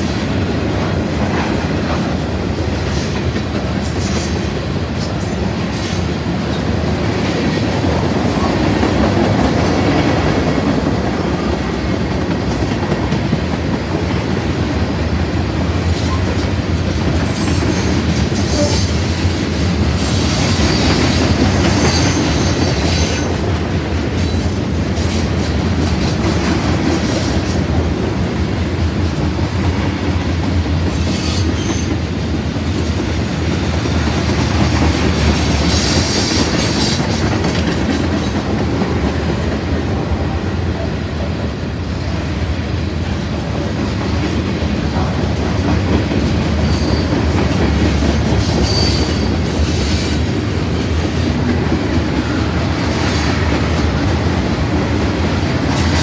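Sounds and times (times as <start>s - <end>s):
freight train rumbling on rails: 0.0s - 56.0s
high wheel squeals: 48.5s - 50.1s.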